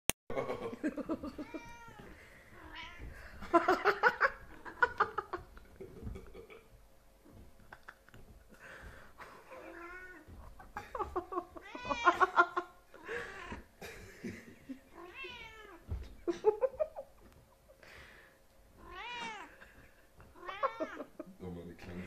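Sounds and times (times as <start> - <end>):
cats meowing: 1.2 - 3.8, 9.5 - 13.7, 14.9 - 16.0, 18.8 - 21.2.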